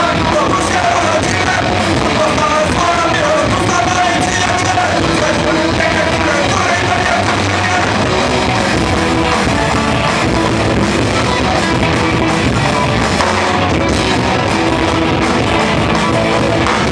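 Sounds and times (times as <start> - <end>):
live rock band playing: 0.0 - 16.9.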